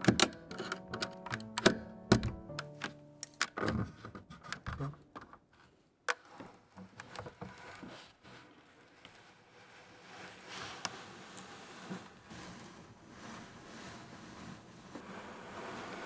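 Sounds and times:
soft music with plucked notes: 0.0s - 5.1s
keycaps clicking off keyboard: 0.0s - 5.3s.

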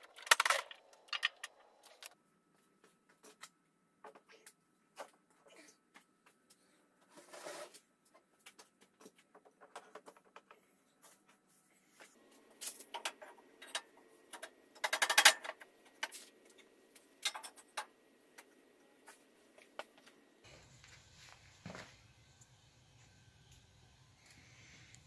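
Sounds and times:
hand tools clicking and knocking: 12.6s - 16.2s.

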